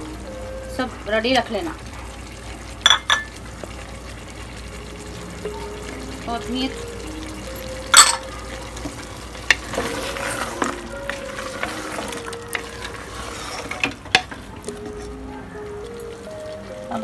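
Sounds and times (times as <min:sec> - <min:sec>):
food sizzling: 0:00.0 - 0:17.0
wooden spatula scraping pot: 0:08.8 - 0:14.2.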